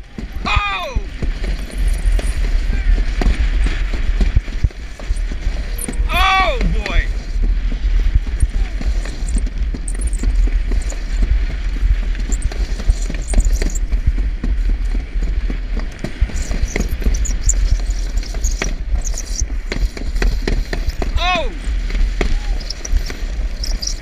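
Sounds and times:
sled rattling knocks: 0.0s - 24.0s
sled rumbling on concrete track: 0.0s - 24.0s
wind buffeting microphone: 0.0s - 24.0s
high squeaks: 8.4s - 11.0s, 12.3s - 13.8s, 16.3s - 19.6s, 22.4s - 24.0s.

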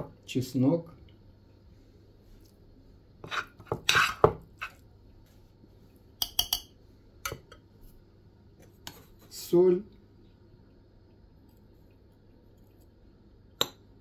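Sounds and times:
metal spoon scraping a pan: 3.2s - 4.8s
spoon clinking against pan: 6.2s - 6.7s.

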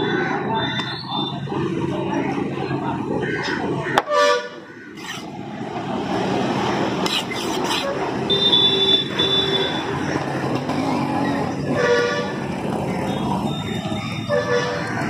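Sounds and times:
motorbike and scooter engines: 0.0s - 15.0s
vehicle horn: 7.9s - 9.9s, 11.7s - 12.4s, 14.2s - 15.0s.

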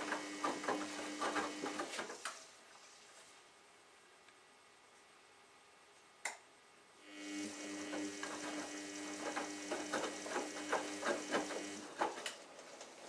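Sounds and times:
washing machine motor hum: 0.0s - 2.5s, 7.0s - 13.0s.

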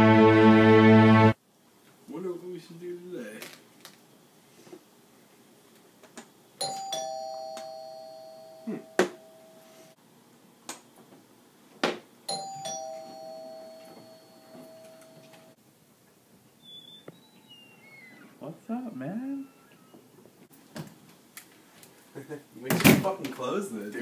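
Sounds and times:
two-tone doorbell chime: 6.6s - 9.9s, 12.3s - 15.6s.

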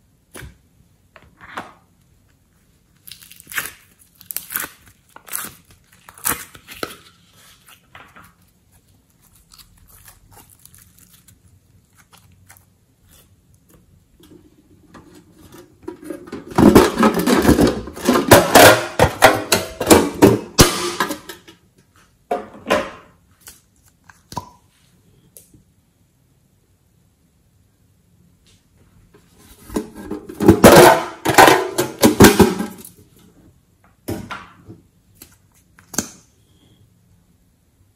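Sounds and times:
slime and clay crackling: 2.8s - 14.0s.

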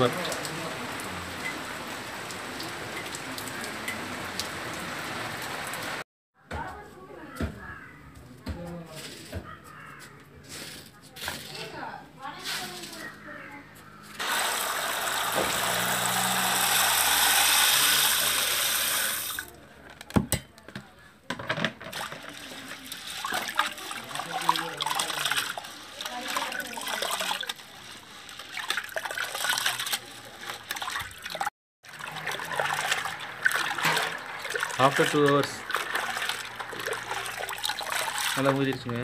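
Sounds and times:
lentils pouring into water: 14.2s - 19.5s, 21.9s - 39.0s
hand swishing lentils in water: 22.0s - 39.0s.

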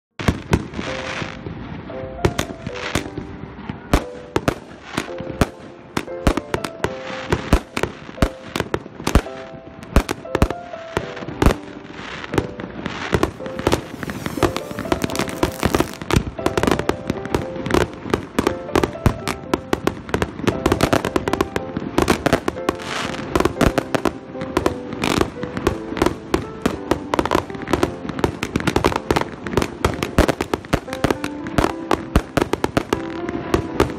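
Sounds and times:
firework bursting cracks: 0.2s - 33.9s
firework launch reports: 12.4s - 23.8s.

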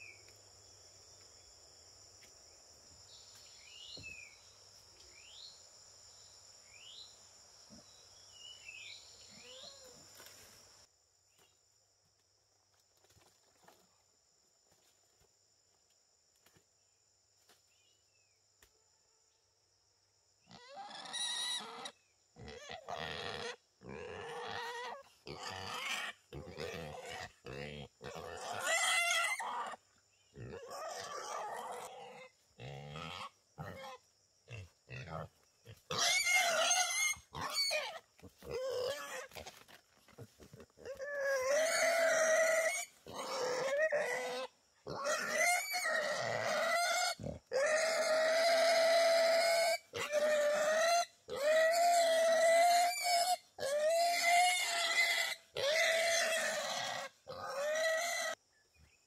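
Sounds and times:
wild boar squealing: 20.5s - 29.8s, 30.4s - 39.5s, 40.6s - 58.4s.

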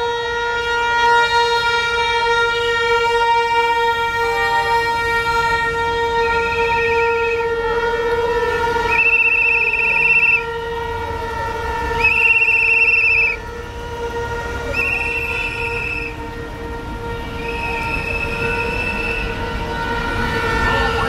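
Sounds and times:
steady horn drone: 0.0s - 21.0s
trilling whistle blasts: 8.8s - 10.7s, 11.8s - 13.4s, 14.6s - 16.3s, 17.1s - 21.0s.

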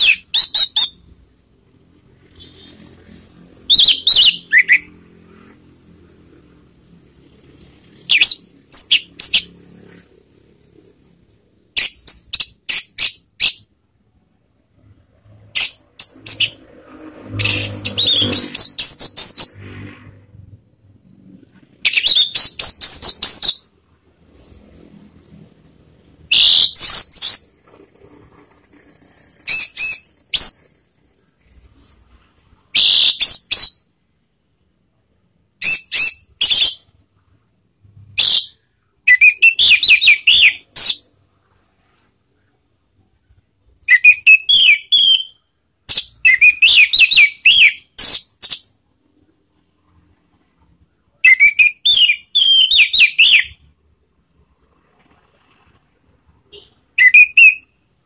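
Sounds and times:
thrush singing whistled song: 0.0s - 1.2s, 2.2s - 13.7s, 14.8s - 19.8s, 21.4s - 27.6s, 29.4s - 30.7s, 32.7s - 33.9s, 35.6s - 37.0s, 37.9s - 41.1s, 43.7s - 48.8s, 51.1s - 53.8s, 56.5s - 57.8s.

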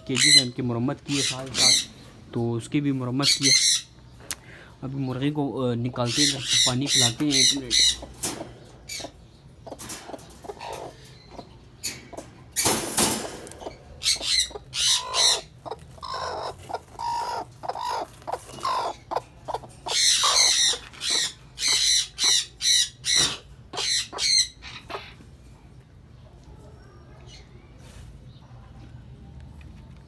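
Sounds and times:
hen squawking: 5.9s - 8.2s, 8.8s - 11.4s, 13.6s - 25.2s.

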